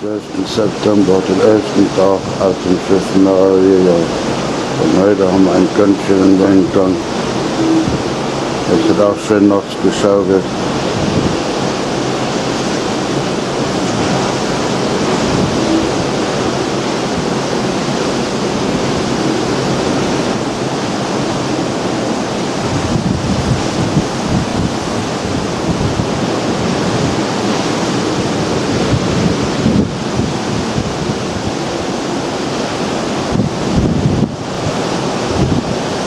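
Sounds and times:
rough sea: 0.0s - 36.0s
storm wind: 0.0s - 36.0s
water churning along ship hull: 0.0s - 36.0s
wind buffeting microphone: 0.0s - 36.0s.

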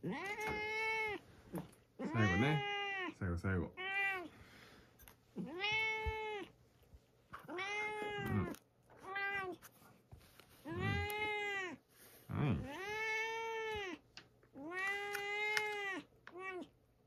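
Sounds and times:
cat meowing: 0.0s - 1.2s, 2.0s - 3.2s, 3.8s - 4.3s, 5.4s - 6.5s, 7.4s - 9.6s, 10.6s - 11.8s, 12.4s - 14.0s, 14.6s - 16.7s.

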